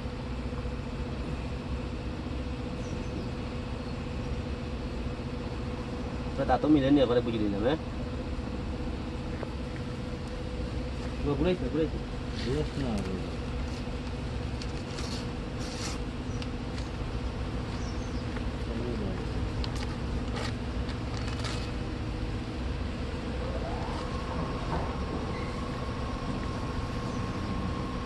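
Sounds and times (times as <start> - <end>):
machine drone with low tones: 0.0 - 28.0.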